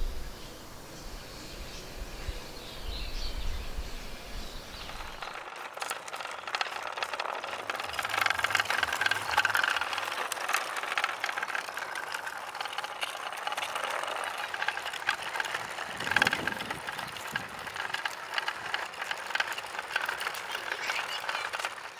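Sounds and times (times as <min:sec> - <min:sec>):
small electric motor whirring: 0:00.0 - 0:21.9
wooden body clicking rattle: 0:04.3 - 0:21.9.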